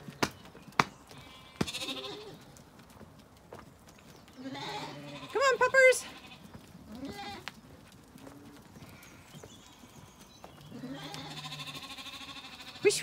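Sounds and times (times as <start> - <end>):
faint birdsong: 0.0 - 2.6, 3.5 - 13.0
sheep bleating: 1.2 - 2.4, 4.4 - 7.5, 10.8 - 13.0.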